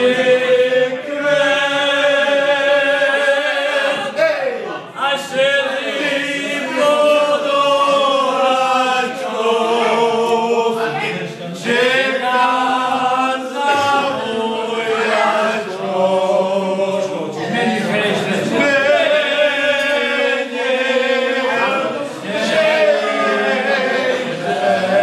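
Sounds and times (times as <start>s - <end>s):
men singing unaccompanied: 0.0s - 11.0s, 11.6s - 25.0s.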